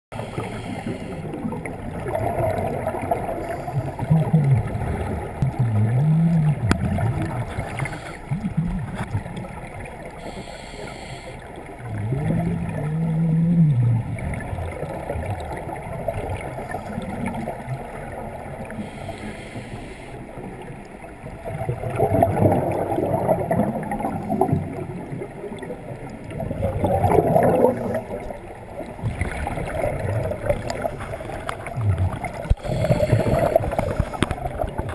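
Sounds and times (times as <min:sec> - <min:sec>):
regulator breathing: 0:00.1 - 0:01.3, 0:07.6 - 0:08.4, 0:10.2 - 0:11.5, 0:18.8 - 0:20.2, 0:32.4 - 0:34.6
air bubbles gurgling underwater: 0:00.2 - 0:10.4, 0:11.5 - 0:19.2, 0:20.4 - 0:34.9.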